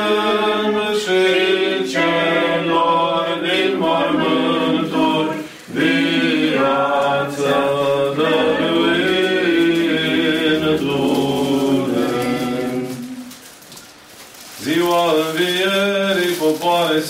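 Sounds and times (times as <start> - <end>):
unaccompanied chant singing: 0.0 - 13.4.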